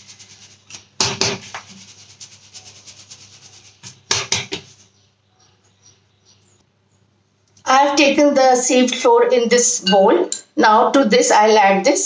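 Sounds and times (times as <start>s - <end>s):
sieve rasping: 0.0s - 5.0s.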